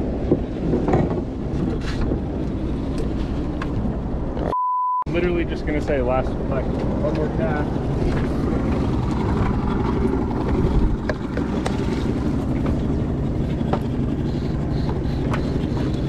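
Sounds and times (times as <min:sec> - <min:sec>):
outboard engine idling: 0:05.3 - 0:16.0.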